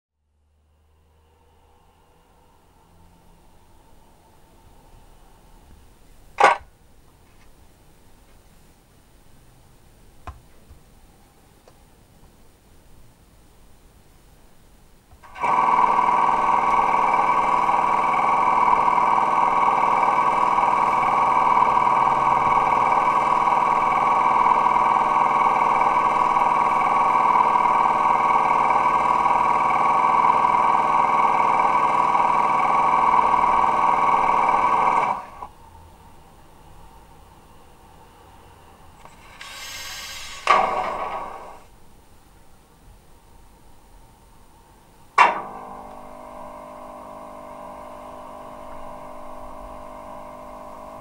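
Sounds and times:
electric locomotive hum: 0:00.2 - 0:06.6, 0:15.2 - 0:41.9, 0:45.1 - 0:51.0.

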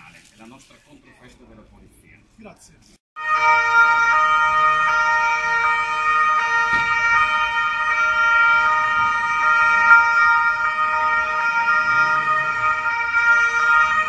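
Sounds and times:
police sirens wailing: 0:03.2 - 0:14.0.

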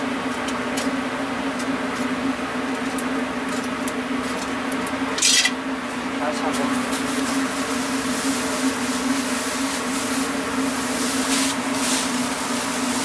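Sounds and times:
tongs scraping on grill mesh: 0:05.2 - 0:05.6.

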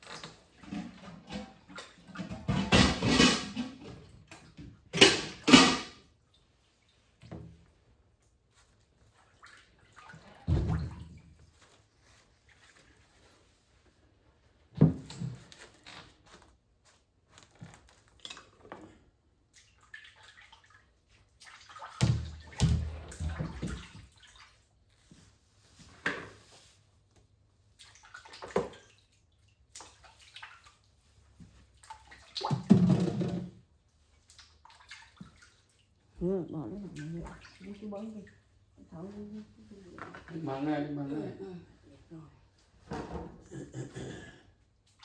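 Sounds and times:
water splashing in a basin: 0:00.0 - 0:07.5, 0:08.2 - 0:13.2, 0:17.6 - 0:24.9, 0:27.6 - 0:39.0.

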